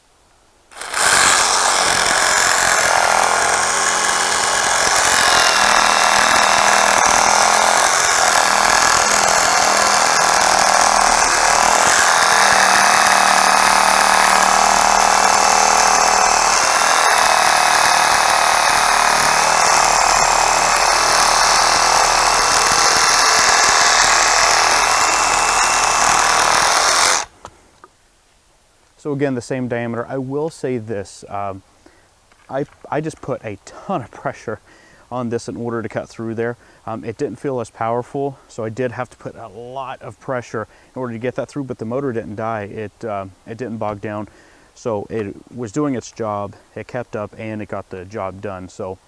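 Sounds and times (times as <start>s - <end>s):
reciprocating saw cutting wood: 0.7s - 27.4s.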